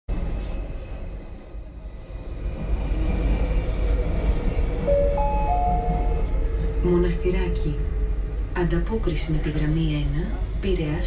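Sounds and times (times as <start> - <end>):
metro train rumble: 0.1 - 11.0
announcement chime: 4.9 - 7.5.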